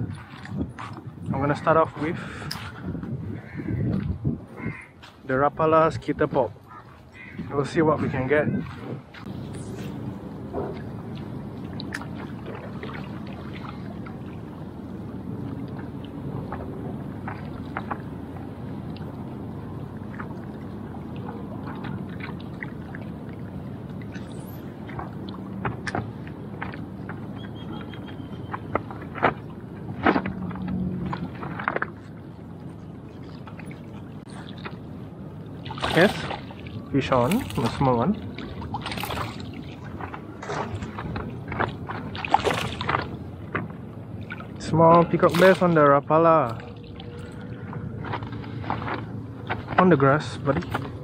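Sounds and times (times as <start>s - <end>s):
wind buffeting microphone: 0.0s - 33.0s
water lapping against rocky shore: 6.6s - 51.0s.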